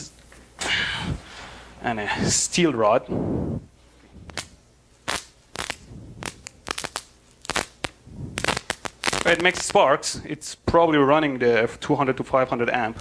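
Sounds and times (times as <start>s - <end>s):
electric arc snapping and crackling: 4.2s - 10.2s, 12.8s - 13.0s.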